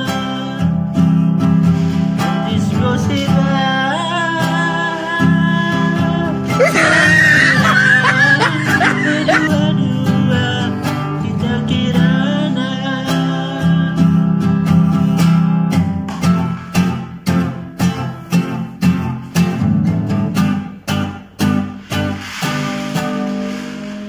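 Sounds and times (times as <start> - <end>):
man singing: 0.0 - 0.8, 2.4 - 14.2
acoustic guitar strumming: 0.0 - 24.0.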